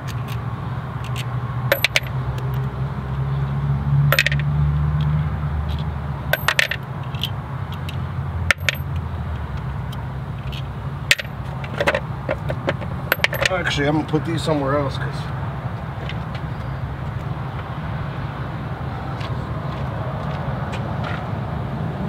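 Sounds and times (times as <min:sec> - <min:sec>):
metal clinks of nuts and washers: 0:01.0 - 0:02.2, 0:04.1 - 0:04.5, 0:05.7 - 0:09.0, 0:10.4 - 0:13.5.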